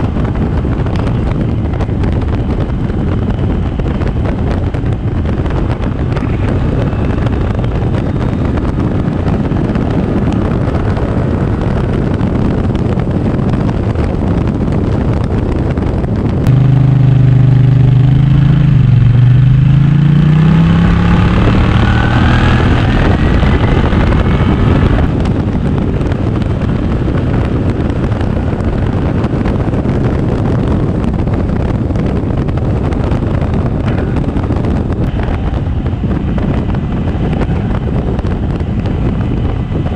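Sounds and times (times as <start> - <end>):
motorcycle road noise: 0.0 - 39.9
wind buffeting: 0.0 - 39.9
scooter engine accelerating: 16.4 - 29.2.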